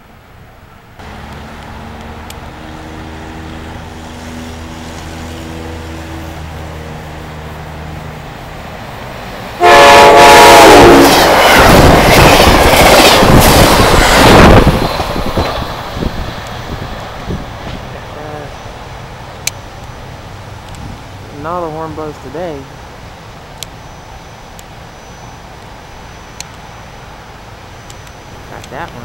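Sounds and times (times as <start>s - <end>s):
low hum of approaching train: 0.0s - 29.0s
train passing with loud rushing: 0.0s - 29.0s
train horn blast: 2.8s - 7.0s, 9.6s - 12.0s.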